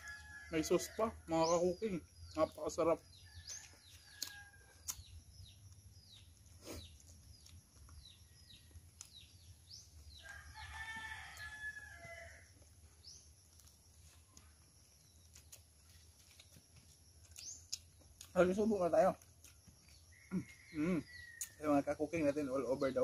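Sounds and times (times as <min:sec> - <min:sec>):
rooster crowing: 0:00.0 - 0:01.3, 0:03.2 - 0:04.9, 0:10.1 - 0:12.6
small bird chirping: 0:00.0 - 0:23.0.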